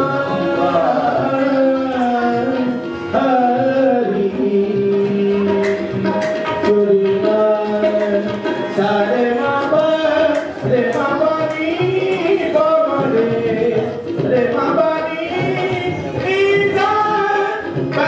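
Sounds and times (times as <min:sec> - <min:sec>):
harmoniums sustained notes: 0:00.0 - 0:13.0
men singing: 0:00.0 - 0:18.0
hand claps: 0:05.6 - 0:06.5, 0:10.3 - 0:12.3.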